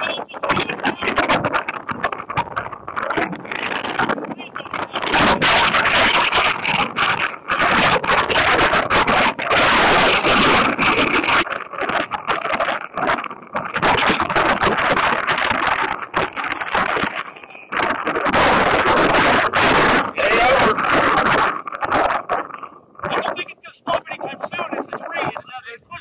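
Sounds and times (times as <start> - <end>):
wind gusting over microphone: 0.0 - 26.0.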